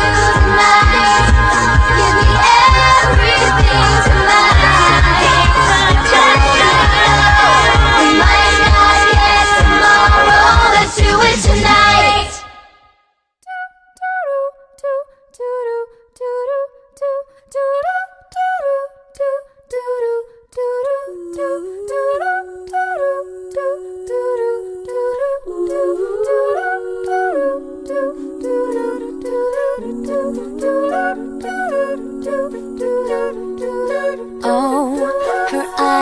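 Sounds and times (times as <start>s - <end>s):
low voices holding harmony: 0.0s - 12.4s, 25.5s - 36.0s
voices singing a melody: 0.0s - 12.7s, 13.6s - 36.0s.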